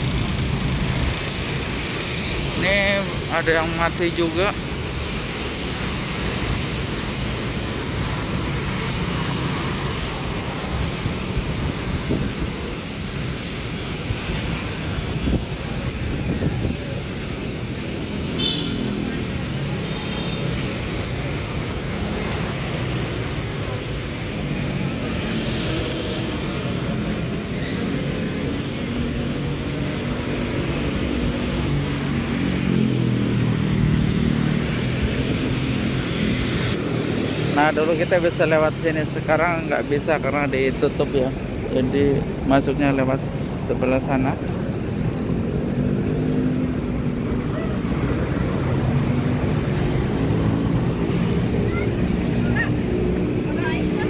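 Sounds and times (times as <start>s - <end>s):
road traffic rumbling: 0.0s - 54.0s
wind buffeting microphone: 14.6s - 17.5s.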